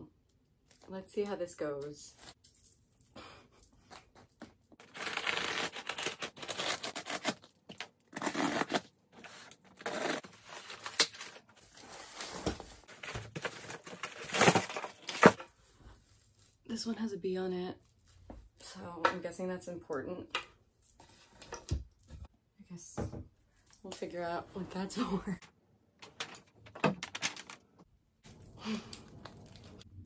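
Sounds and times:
cardboard tearing: 0:04.8 - 0:11.4, 0:12.9 - 0:15.4
cardboard rustling: 0:08.2 - 0:15.4.

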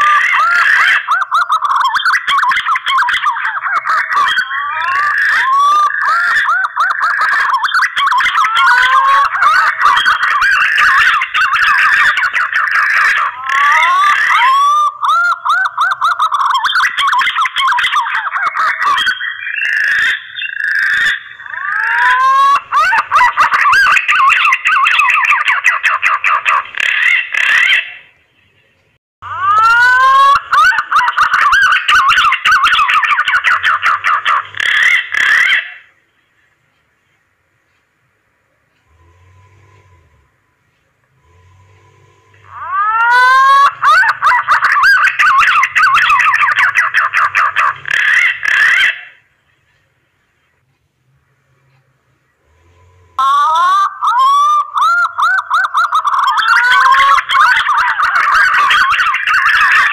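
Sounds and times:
hoarse rasping call: 0:03.6 - 0:16.6, 0:18.4 - 0:28.1, 0:29.2 - 0:36.0, 0:38.7 - 0:49.3, 0:51.2 - 0:59.9
pigeon whistled song: 0:04.3 - 0:18.2, 0:18.8 - 0:26.3
pigeon warbling whistles: 0:20.2 - 0:25.8, 0:42.5 - 0:49.1.

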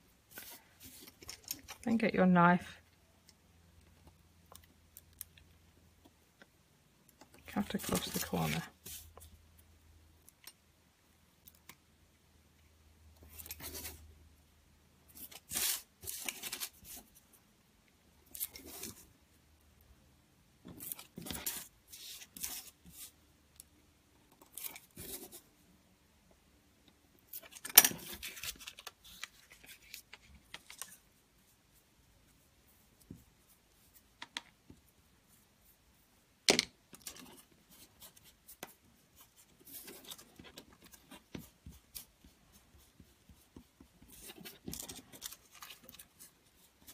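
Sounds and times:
paper rustling: 0:07.6 - 0:09.1, 0:15.2 - 0:17.2, 0:27.3 - 0:31.0, 0:37.0 - 0:46.9.

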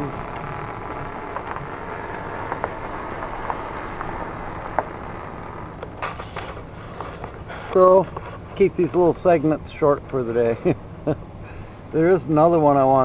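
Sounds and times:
engine humming inside cab: 0:00.0 - 0:12.2.

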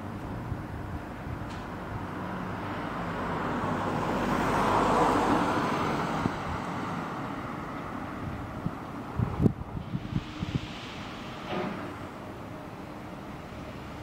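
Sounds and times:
van driving past: 0:00.8 - 0:14.0
freight wagons rumbling: 0:05.8 - 0:14.0.

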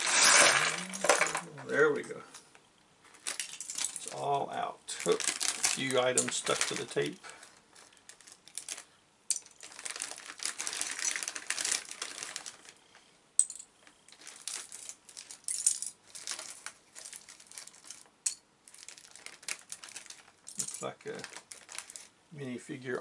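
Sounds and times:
plastic bricks clattering: 0:00.0 - 0:01.5, 0:05.0 - 0:12.8.

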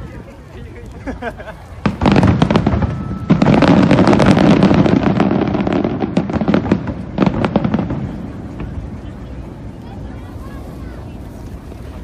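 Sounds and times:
firework bang: 0:01.8 - 0:09.0
firework crackling pops: 0:01.8 - 0:12.0.

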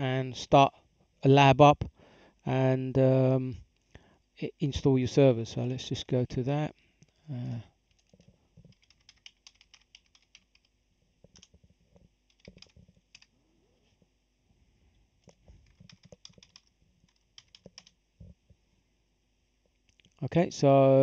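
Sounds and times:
keyboard typing: 0:07.9 - 0:13.3, 0:15.2 - 0:18.0.

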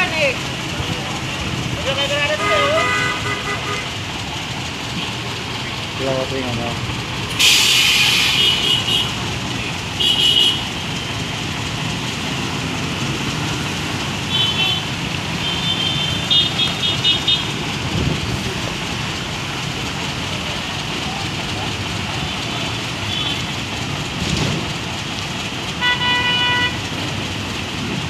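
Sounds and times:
traffic engines: 0:00.0 - 0:28.0
water washing: 0:00.0 - 0:28.0
car horn toots: 0:02.1 - 0:03.9, 0:10.0 - 0:10.8, 0:25.8 - 0:26.9
loud hiss: 0:07.3 - 0:08.9.

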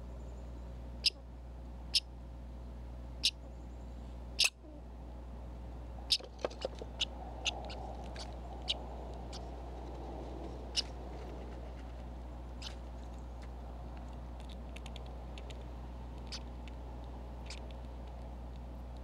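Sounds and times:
steady low hum: 0:00.0 - 0:19.0
squirrel cracking seeds: 0:06.1 - 0:19.0.

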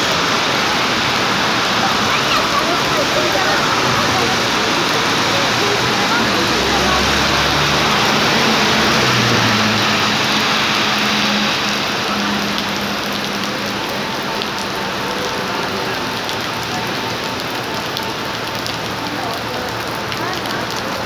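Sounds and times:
heavy rain on pavement: 0:00.0 - 0:21.0.

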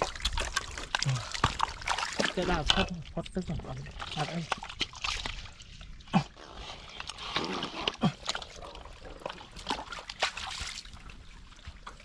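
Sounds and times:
water sloshing and splashing: 0:00.0 - 0:12.0.

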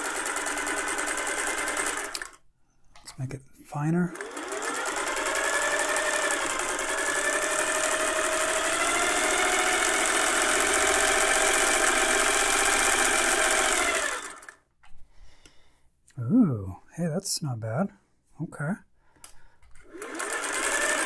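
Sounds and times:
sewing machine running: 0:00.0 - 0:02.4, 0:04.1 - 0:14.6, 0:19.8 - 0:21.0.

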